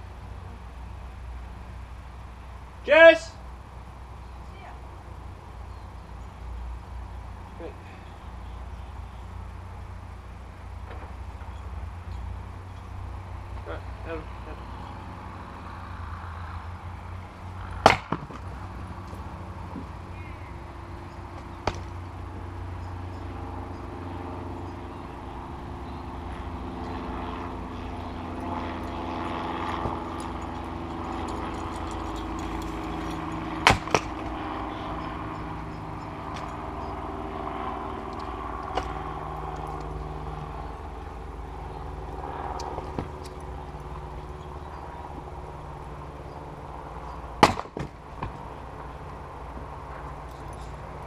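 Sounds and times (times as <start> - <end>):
steady low hum: 0.0 - 51.0
maul striking firewood: 17.8 - 18.5, 21.4 - 22.0, 33.6 - 34.3, 47.4 - 48.4.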